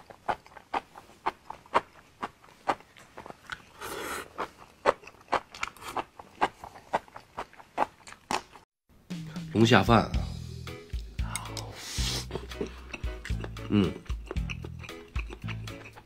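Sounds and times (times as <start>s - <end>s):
close chewing crunches: 0.0s - 8.7s, 12.3s - 16.0s.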